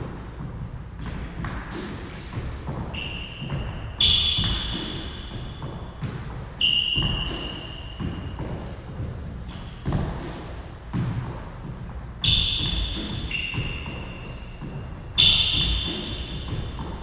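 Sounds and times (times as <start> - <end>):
sneakers squeaking: 0.0 - 17.0
footsteps on hardwood court: 4.4 - 17.0.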